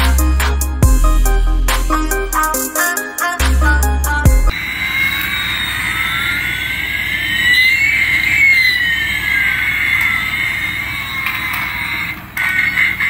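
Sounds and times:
toy jet engine sound effect: 0:04.5 - 0:13.0.

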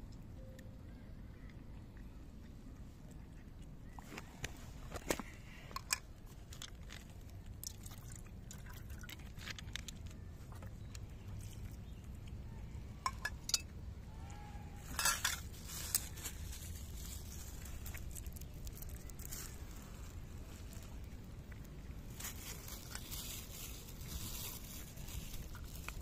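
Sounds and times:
cats crunching dry kibble: 0:05.0 - 0:11.8, 0:14.9 - 0:26.0.

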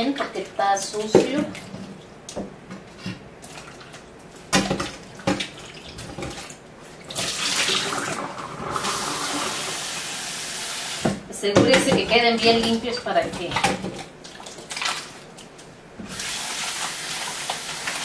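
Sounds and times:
water poured into sink: 0:07.1 - 0:10.1.

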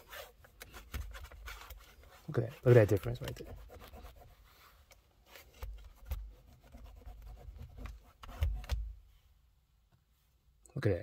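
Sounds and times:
towel rubbing on mirror: 0:00.0 - 0:08.8.

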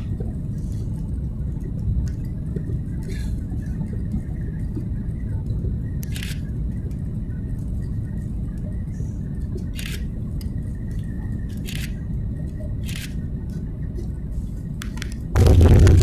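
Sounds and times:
aircraft cabin engine rumble: 0:00.0 - 0:16.0
faint steady whine: 0:00.0 - 0:16.0
wheels touching down on runway: 0:15.4 - 0:16.0.

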